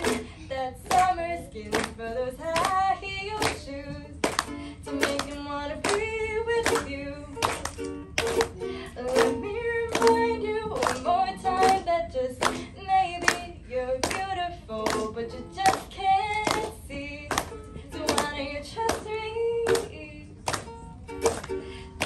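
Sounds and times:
woman singing pop ballad: 0.0 - 4.2, 8.9 - 20.4
strummed ukulele: 0.0 - 22.0.

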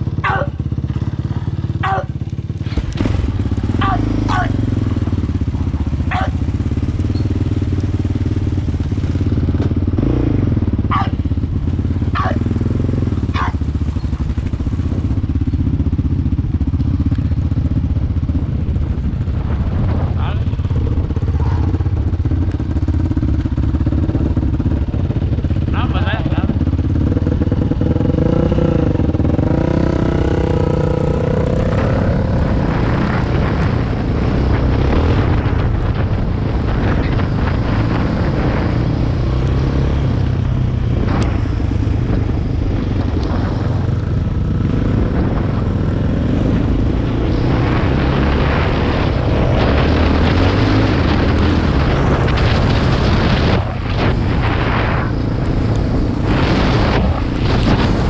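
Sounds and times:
quad bike engine running: 0.0 - 58.0
rushing noise: 41.0 - 58.0.

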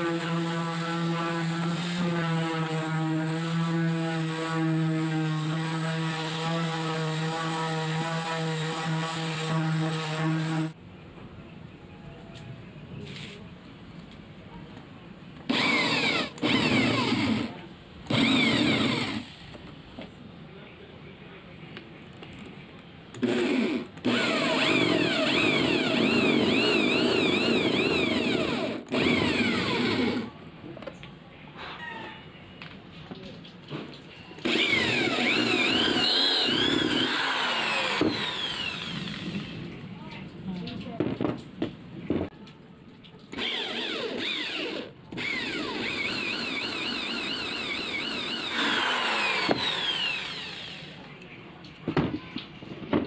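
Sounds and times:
electric drill boring into wood: 15.5 - 19.6, 23.2 - 30.3, 34.4 - 39.6, 43.3 - 51.0.

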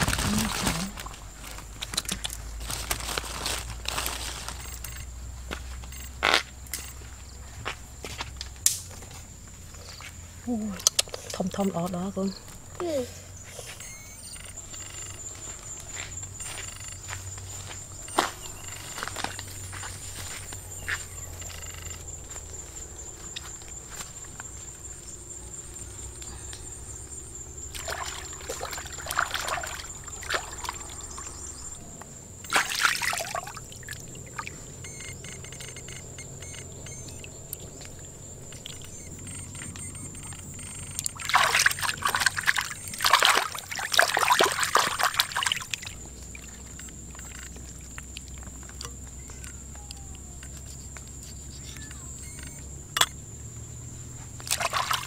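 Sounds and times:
water splashing and sloshing: 0.0 - 6.1, 26.9 - 31.8, 32.4 - 49.1, 54.4 - 55.0
high-pitched insect drone: 11.6 - 47.9, 49.0 - 54.0.

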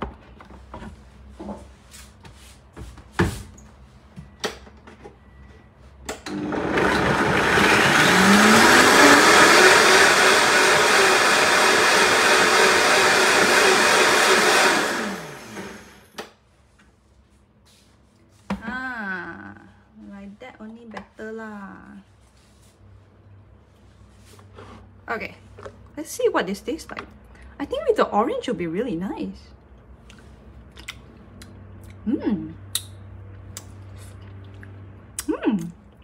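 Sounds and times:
blender motor grinding: 6.3 - 16.1.

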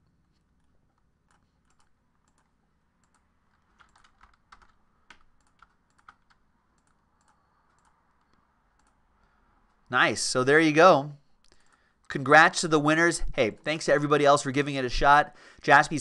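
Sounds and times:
keyboard and mouse clicks: 0.2 - 9.0.

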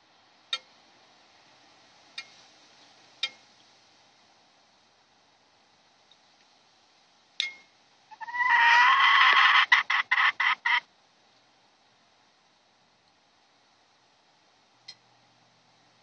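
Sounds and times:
chicken calling: 8.1 - 10.9.

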